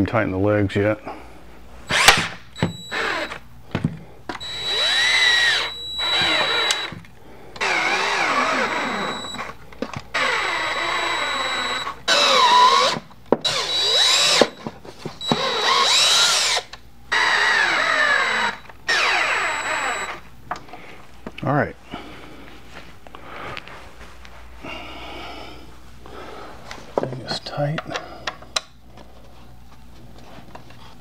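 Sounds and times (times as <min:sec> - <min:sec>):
cordless drill tightening bolts: 0:01.9 - 0:03.4, 0:04.3 - 0:07.0, 0:07.6 - 0:09.5, 0:10.1 - 0:14.6, 0:15.2 - 0:20.2.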